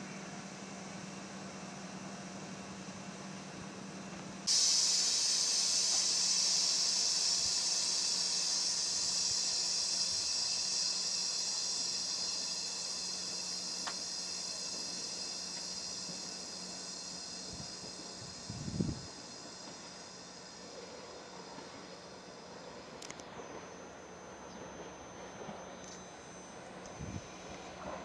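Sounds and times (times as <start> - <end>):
steady low hum: 0.0 - 28.0
train air venting hiss: 4.4 - 23.1.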